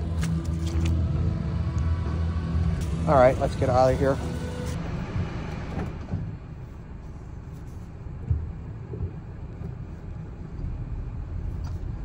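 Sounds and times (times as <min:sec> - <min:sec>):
car engine and tyres rumbling: 0:00.0 - 0:12.0
car thump: 0:08.2 - 0:09.8.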